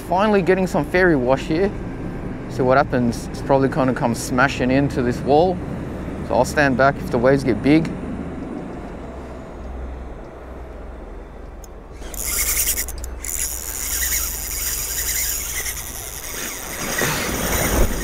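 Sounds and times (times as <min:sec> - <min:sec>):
fishing reel drag screaming: 0:11.9 - 0:18.0.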